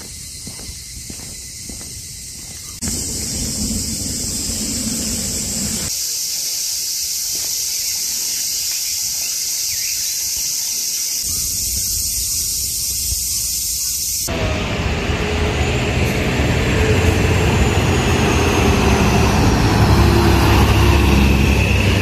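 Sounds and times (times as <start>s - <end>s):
high-pitched insect chorus: 0.0s - 14.4s.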